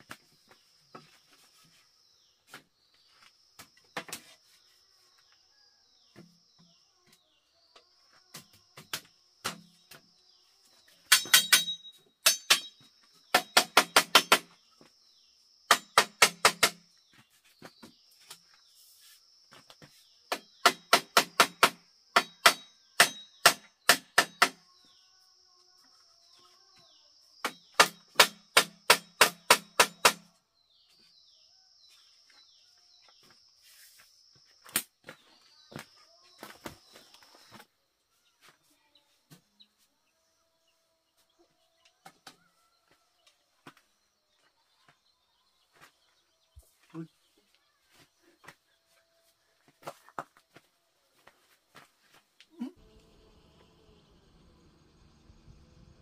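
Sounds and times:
machete striking bamboo: 8.8 - 9.8, 11.1 - 14.6, 15.7 - 16.9, 20.3 - 24.6, 27.4 - 30.3.

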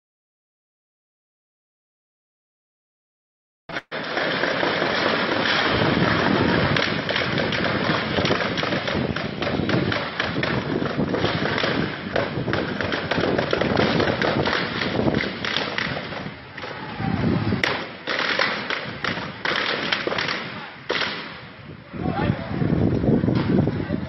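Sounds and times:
gunfire cracks: 3.7 - 16.8, 17.6 - 21.5
steady rough noise: 3.7 - 24.0.

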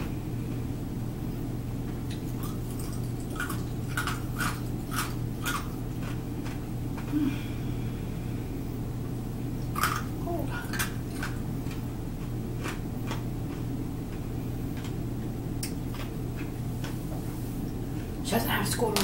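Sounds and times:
low hum: 0.0 - 18.9
potato chips crunching: 2.1 - 7.1, 9.7 - 14.2.

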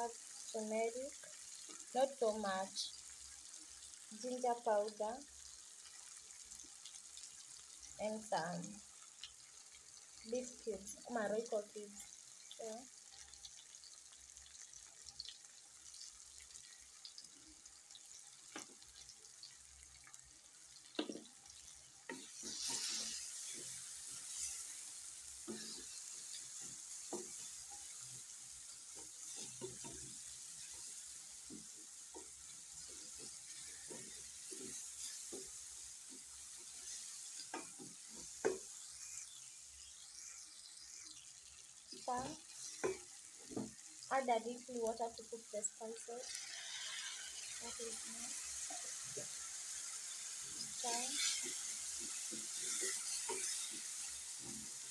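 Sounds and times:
vegetables sizzling in oil: 0.0 - 54.9
wooden spoon scraping pan: 22.1 - 27.8, 46.2 - 48.0, 50.4 - 54.9
spoon knocking against pan: 37.4 - 38.8, 42.7 - 43.8.

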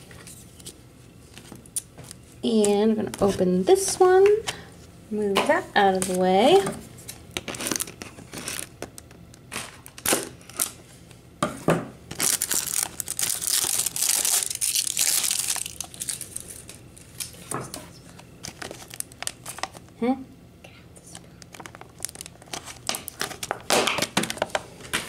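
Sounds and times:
plastic wrap crinkling and tearing: 7.2 - 10.8, 12.1 - 19.9, 21.5 - 24.5.

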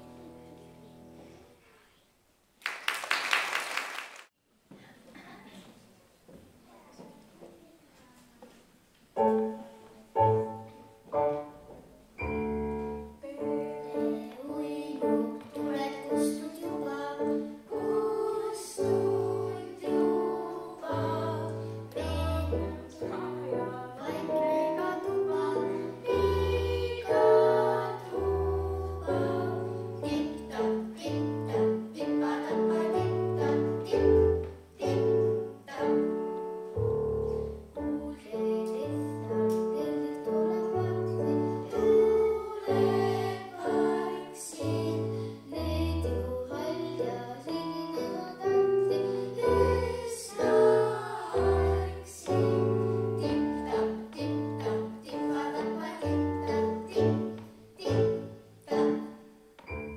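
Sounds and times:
piano music: 0.0 - 1.2, 9.2 - 59.9.

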